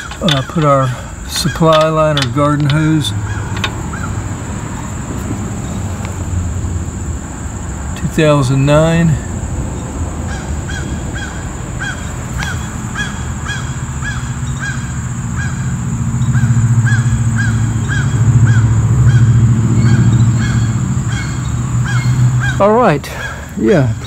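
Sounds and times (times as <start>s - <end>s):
high insect drone: 0.0s - 24.0s
bird chirping: 9.6s - 24.0s.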